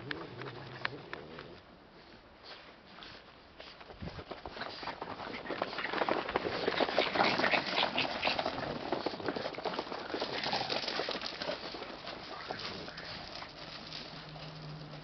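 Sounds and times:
pets pattering on gravel: 0.0s - 15.0s
person walking: 9.9s - 15.0s.

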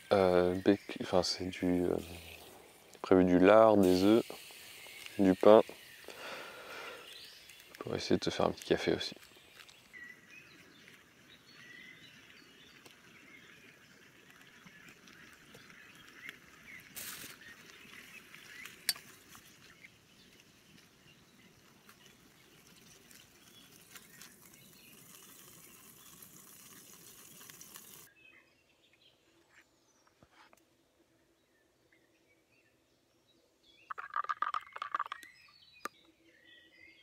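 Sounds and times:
steady hiss: 0.0s - 28.1s
bird chirps: 31.4s - 37.0s.

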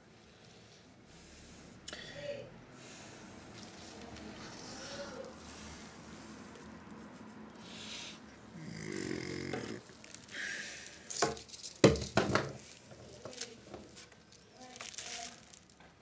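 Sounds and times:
short low throat noise: 8.5s - 9.9s.

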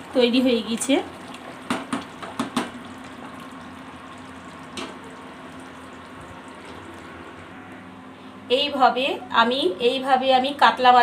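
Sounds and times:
curry simmering with soft hiss: 0.0s - 7.7s
spatula tapping pan: 1.7s - 2.8s.

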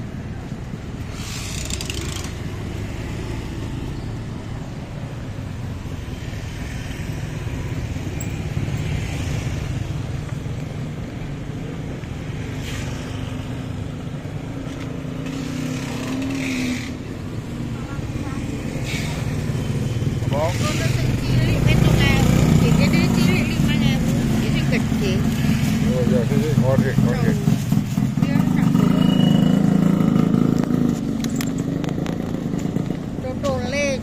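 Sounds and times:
passing vehicles: 0.0s - 34.0s
motorcycle engine: 1.0s - 34.0s.

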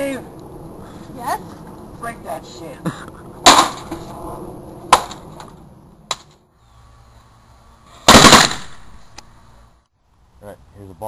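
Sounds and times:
air cannon blast: 8.0s - 9.0s.

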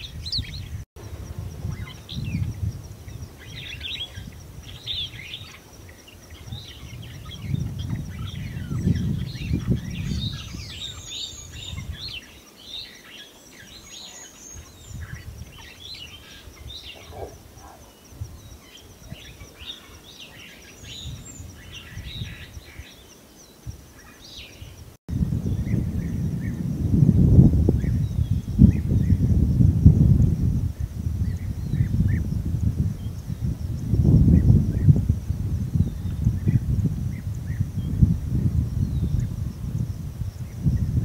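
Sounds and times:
birds chirping: 0.0s - 24.9s.

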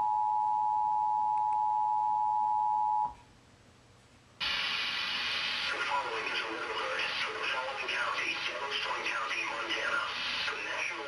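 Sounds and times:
hissing broadcast audio: 4.4s - 11.0s.

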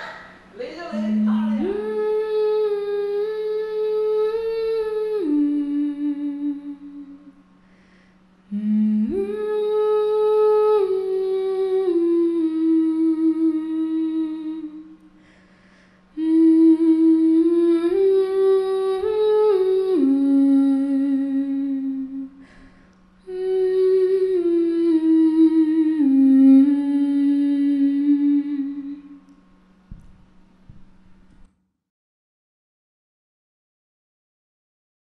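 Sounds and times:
person humming: 0.0s - 7.4s, 8.5s - 15.4s, 16.1s - 29.3s
faint low drone: 0.0s - 31.5s.

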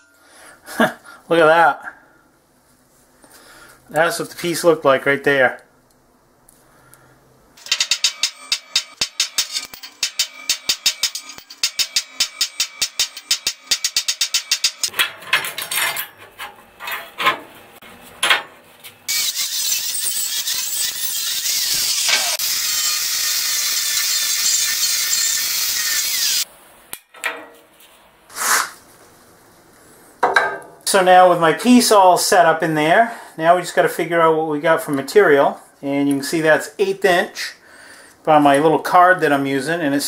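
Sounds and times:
angle grinder grinding steel: 7.6s - 14.9s, 19.1s - 26.5s
sharp metallic clicks: 7.6s - 14.9s.

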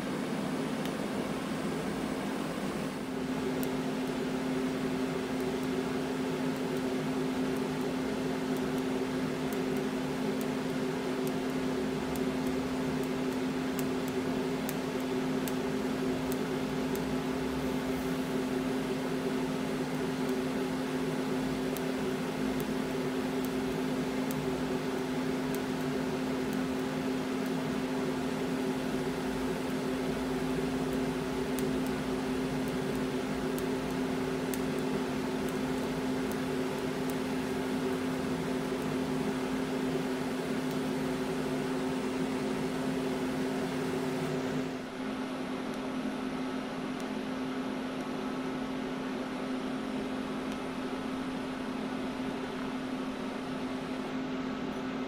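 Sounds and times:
welding arc buzzing and hissing: 0.0s - 44.9s
faint crackling ticks: 32.6s - 37.2s.

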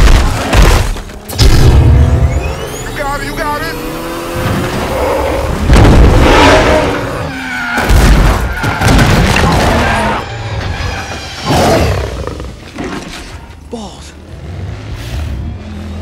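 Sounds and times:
racing car engines: 1.2s - 16.0s
tyres skidding: 2.0s - 16.0s
heavy crashes and booms: 5.6s - 6.9s, 7.8s - 10.2s.

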